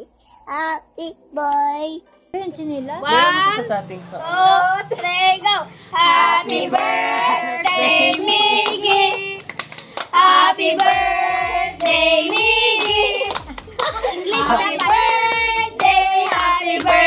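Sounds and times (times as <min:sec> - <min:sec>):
children and woman singing: 0:06.0 - 0:09.5, 0:10.1 - 0:17.0
hands clapping: 0:06.0 - 0:17.0
low thudding beat: 0:10.2 - 0:17.0.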